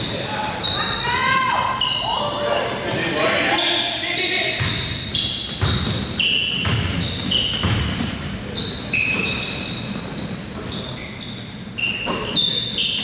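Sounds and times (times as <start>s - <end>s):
shoes squeaking on hardwood court: 0.0s - 13.0s
basketball bouncing: 4.6s - 8.2s.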